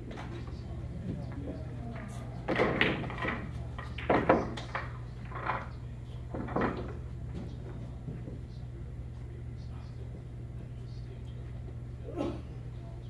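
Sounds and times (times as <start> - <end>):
pool balls clacking: 0.0 - 8.7.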